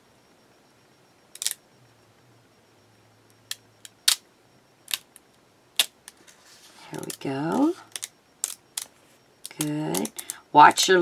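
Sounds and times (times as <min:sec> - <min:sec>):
plastic sheet clicks and crackles: 0:06.9 - 0:10.4.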